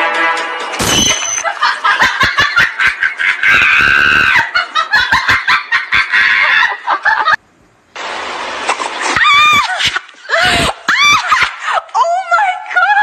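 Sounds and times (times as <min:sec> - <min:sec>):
person shrieking and laughing: 0:03.1 - 0:07.4, 0:09.1 - 0:12.3.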